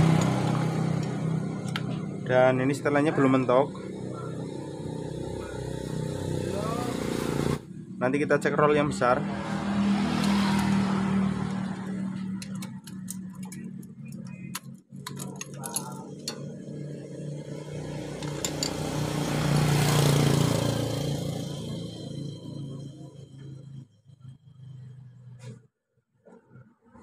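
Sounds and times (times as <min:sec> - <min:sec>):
metal clicks of screwdriver: 0:12.4 - 0:16.4.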